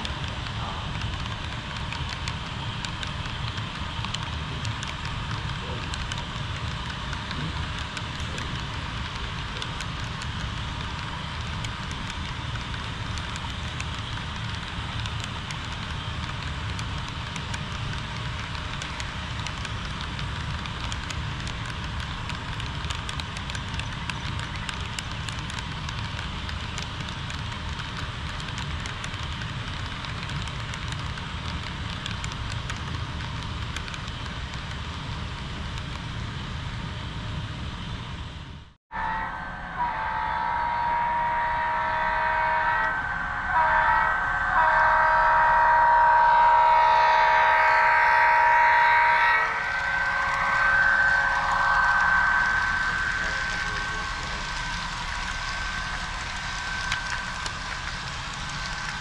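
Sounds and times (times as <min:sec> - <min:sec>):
fine clicks crackling: 0:00.0 - 0:36.1, 0:49.6 - 0:59.0
model train rolling rumble: 0:00.0 - 0:39.2, 0:39.8 - 0:59.0.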